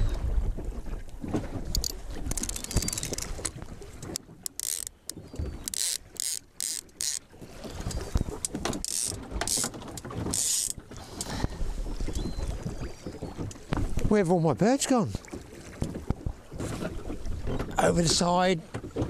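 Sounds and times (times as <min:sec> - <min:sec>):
fishing reel ratcheting: 0:01.7 - 0:07.2, 0:08.8 - 0:10.8.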